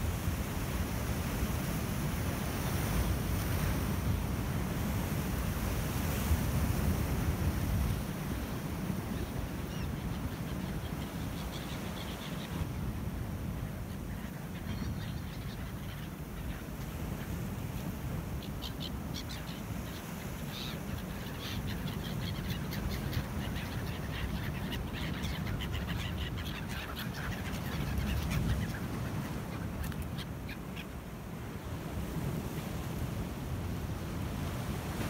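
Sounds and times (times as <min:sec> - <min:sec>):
gulls calling: 0:08.3 - 0:12.8, 0:13.4 - 0:31.0.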